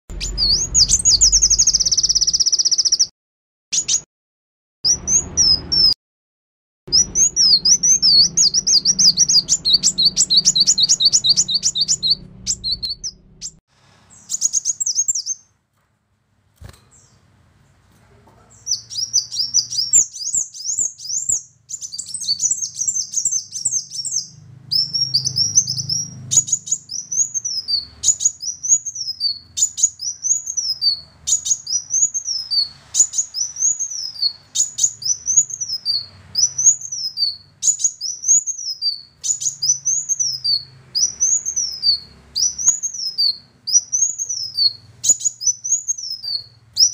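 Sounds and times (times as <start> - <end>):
bird chirping and twittering: 0.1 - 3.1, 3.7 - 4.1, 4.9 - 6.0, 6.9 - 15.5, 18.5 - 46.9
bird song phrase of sweeping notes: 0.1 - 3.1, 6.9 - 13.6.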